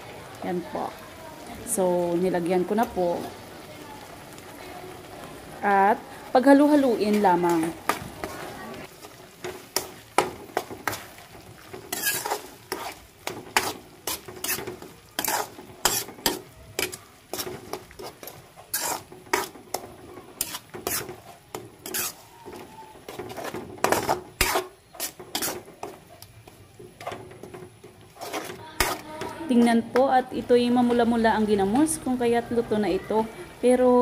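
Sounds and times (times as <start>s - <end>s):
paste sizzling in a frying pan: 0.0s - 34.0s
metal spoon scraping a pan: 9.3s - 30.1s.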